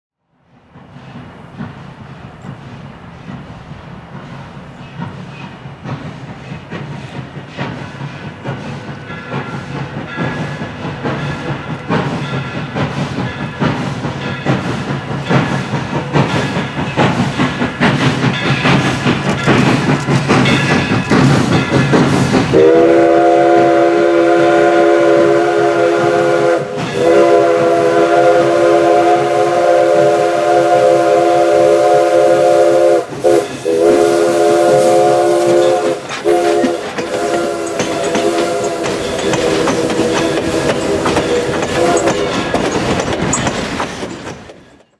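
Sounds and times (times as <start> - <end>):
steam locomotive exhaust chuffs: 0.6 - 44.9
steam whistle blasts: 22.5 - 42.2.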